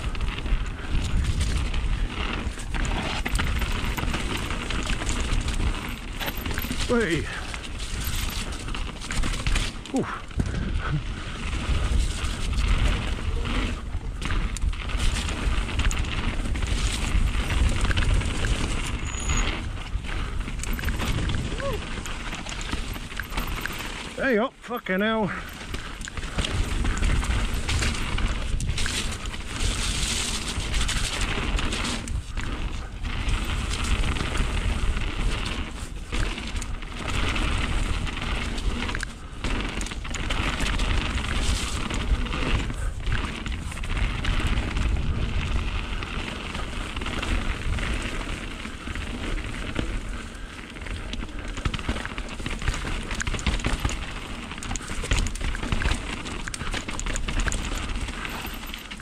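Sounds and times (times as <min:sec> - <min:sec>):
bike tyres on wet ground: 0:00.0 - 0:59.0.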